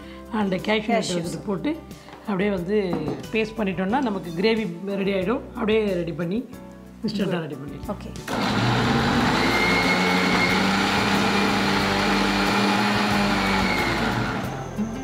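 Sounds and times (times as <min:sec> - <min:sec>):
mixer grinder running: 0:08.3 - 0:14.6.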